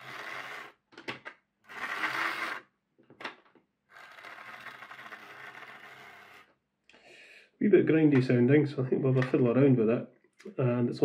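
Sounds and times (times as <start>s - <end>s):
model train motor and gears grinding: 1.7s - 2.6s, 3.9s - 6.5s.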